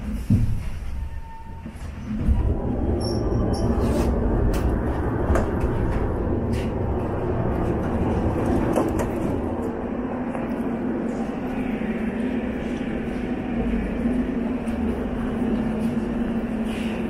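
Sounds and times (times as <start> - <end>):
metro train rumble: 0.0 - 17.0.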